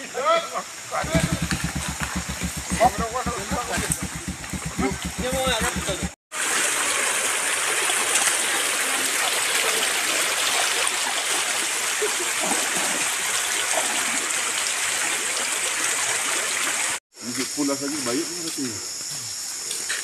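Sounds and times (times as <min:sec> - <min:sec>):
stream flowing over rocks: 0:06.3 - 0:17.0.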